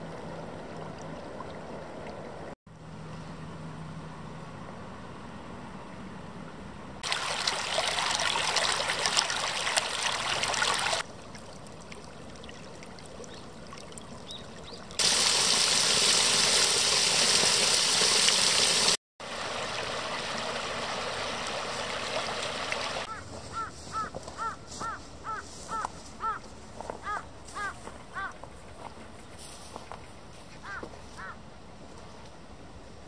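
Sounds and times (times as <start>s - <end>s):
stream trickling over stones: 0.0s - 2.6s, 7.0s - 23.1s
rush of water: 7.0s - 23.1s.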